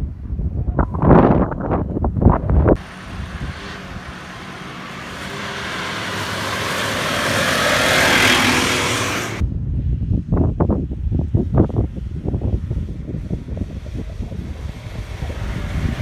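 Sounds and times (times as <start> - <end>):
gusty wind on microphone: 0.0 - 16.0
off-road vehicle driving past: 2.8 - 9.4.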